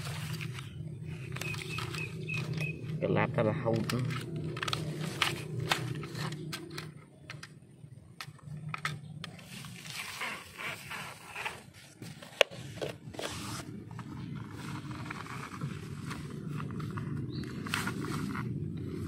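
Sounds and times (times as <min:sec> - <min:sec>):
small plastic clicks: 0:03.7 - 0:09.5
toy pushed over dirt: 0:08.2 - 0:19.0.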